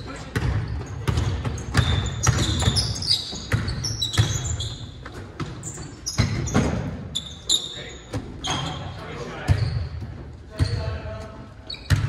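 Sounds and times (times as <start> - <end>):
sneaker squeaks: 0.1 - 12.0
basketball bouncing on hardwood: 0.4 - 4.4.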